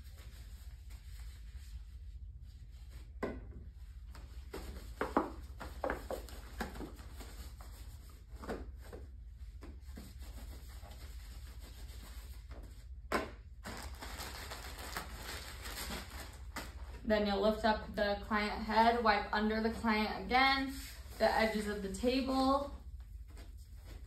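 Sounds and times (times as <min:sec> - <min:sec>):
low steady hum: 0:00.0 - 0:24.0
plastic packaging crinkling: 0:13.6 - 0:17.0.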